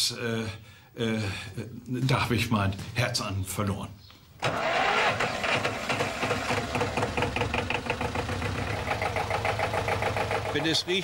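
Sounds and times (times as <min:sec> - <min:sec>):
diesel tractor engine knocking: 0:05.7 - 0:11.0.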